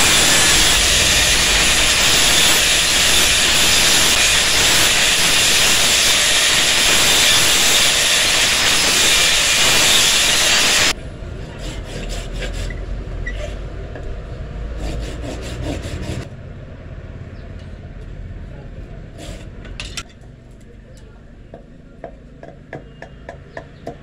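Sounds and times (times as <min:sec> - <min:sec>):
angle grinder cutting steel: 0:00.0 - 0:12.8.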